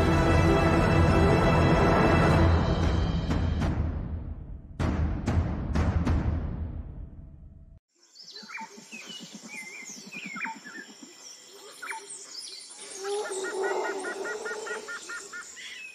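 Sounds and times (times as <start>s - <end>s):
birds chirping and whistling: 8.2s - 15.9s.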